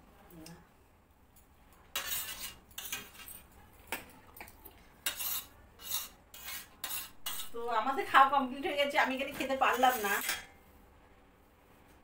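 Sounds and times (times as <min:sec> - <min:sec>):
metal spoon scraping a plate: 0:01.9 - 0:03.4, 0:05.0 - 0:07.6, 0:09.7 - 0:10.5.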